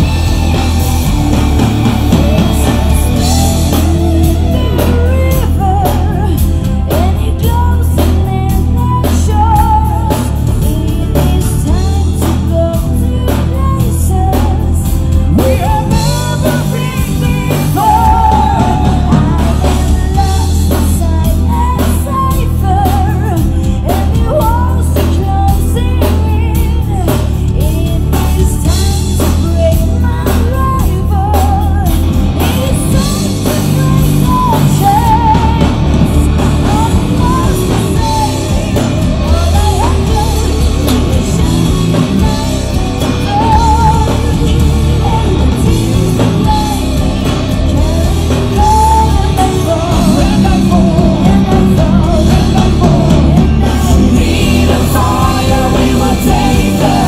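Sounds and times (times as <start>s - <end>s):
metal band playing live: 0.0s - 57.0s
woman singing lead: 0.0s - 57.0s.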